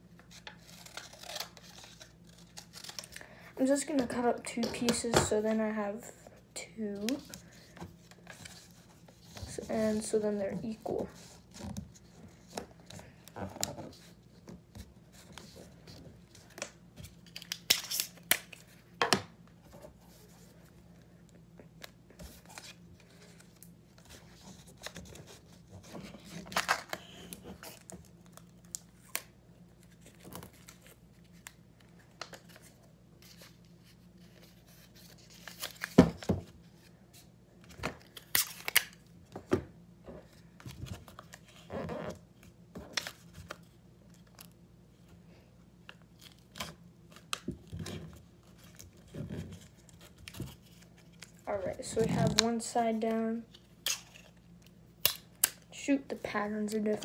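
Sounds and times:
paper rustling and crinkling: 0.3s - 4.1s, 21.8s - 38.9s.

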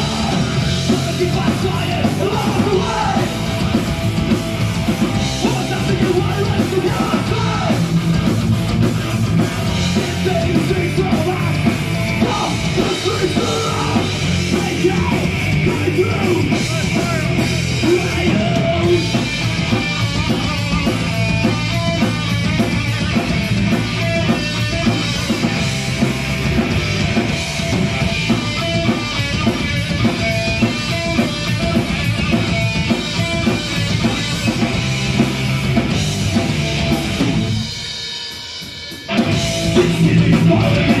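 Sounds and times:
bass guitar: 0.0s - 38.0s, 38.9s - 41.0s
drum kit: 0.0s - 41.0s
electric guitars: 0.0s - 41.0s
person singing: 5.4s - 7.8s, 39.7s - 41.0s.

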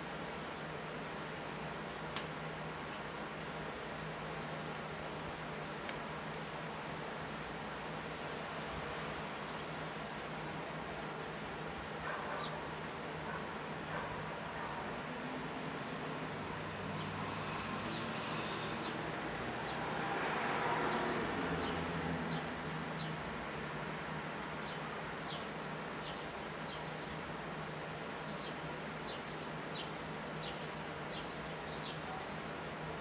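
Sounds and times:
outdoor background noise: 0.0s - 33.0s
sparrows chirping: 2.8s - 3.1s, 13.3s - 15.0s, 16.4s - 19.0s, 19.6s - 32.9s.

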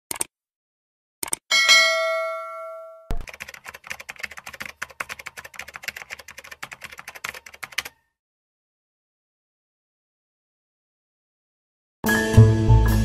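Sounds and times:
keyboard typing clicks: 0.1s - 0.3s, 1.2s - 1.4s, 3.1s - 8.0s
bell ding: 1.5s - 3.2s.

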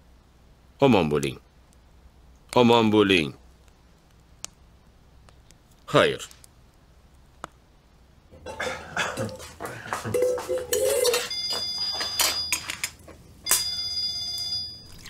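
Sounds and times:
dishes and cutlery clattering: 8.4s - 13.0s
ringing glass clinks: 10.1s - 13.9s.

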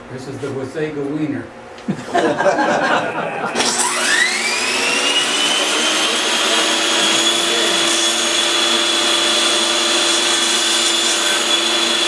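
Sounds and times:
table saw motor whine: 3.5s - 12.0s.

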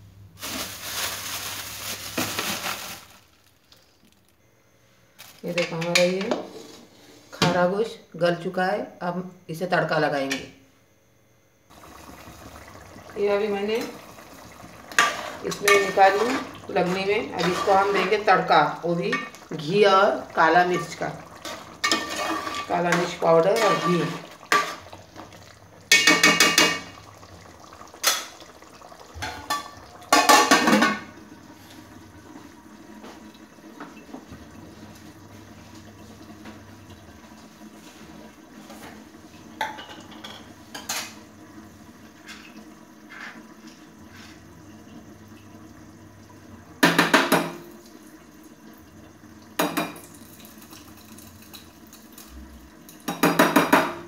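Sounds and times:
metal pot lid clanking: 25.9s - 26.9s.

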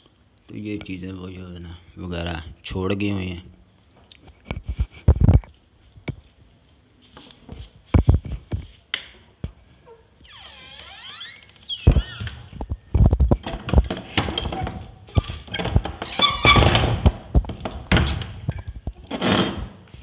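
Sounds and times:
footsteps: 4.0s - 9.8s
squeak sliding in pitch: 9.9s - 12.2s.

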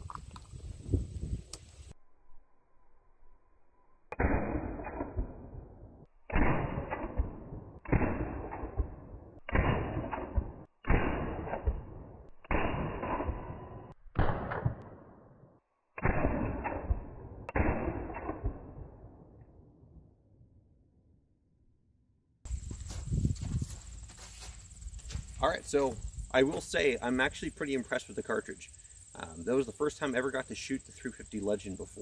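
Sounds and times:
rifle shots with echo: 4.2s - 15.3s, 16.0s - 19.4s.

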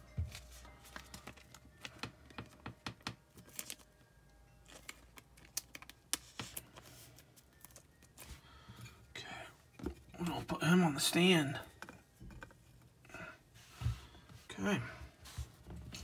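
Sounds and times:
plastic card sleeve crinkling: 0.8s - 3.9s, 4.6s - 8.3s.

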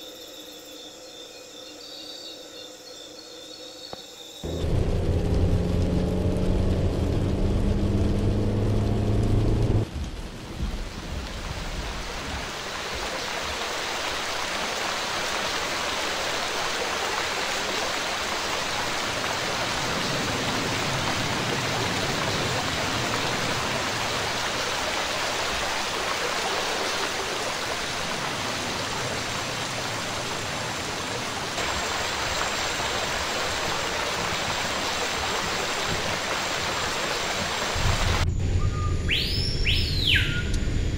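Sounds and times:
car engine and road drone: 4.4s - 10.6s, 37.7s - 39.8s
rain on foliage: 4.4s - 38.2s.

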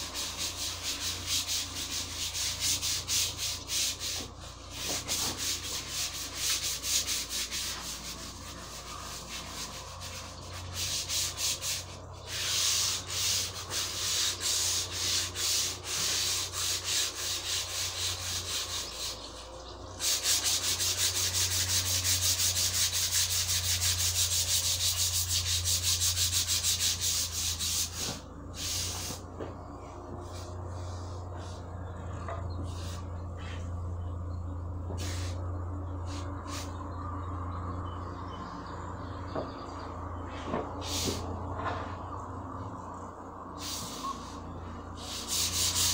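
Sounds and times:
sandpaper rasping on wood: 0.0s - 29.3s, 45.0s - 45.9s.

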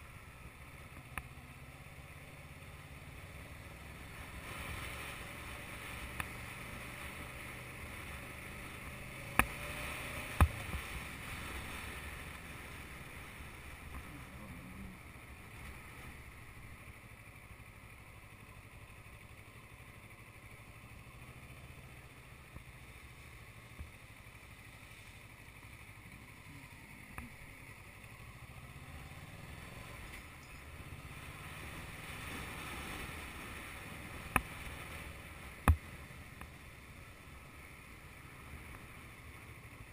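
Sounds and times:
wind and road noise: 0.0s - 39.9s
motorbike engine running: 5.2s - 32.2s.

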